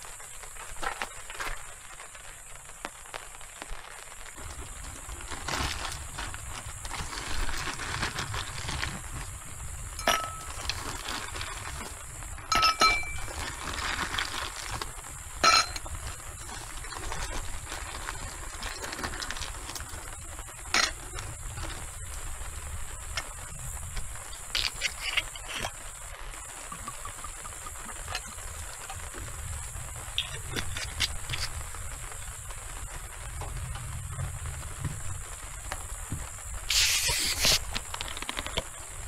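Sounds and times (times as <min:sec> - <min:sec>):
background hiss: 0:00.0 - 0:39.0
hard objects clinking: 0:10.0 - 0:11.1, 0:12.5 - 0:13.6, 0:15.4 - 0:16.0.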